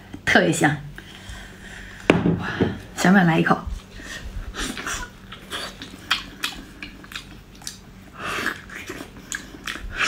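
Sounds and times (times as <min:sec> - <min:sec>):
mouth chewing clicks and smacks: 0:05.3 - 0:10.0.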